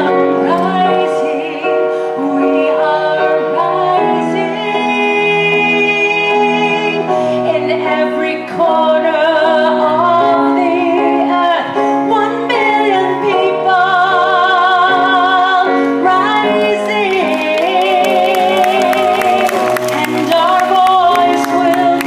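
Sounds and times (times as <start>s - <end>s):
woman singing into a microphone: 0.0s - 22.0s.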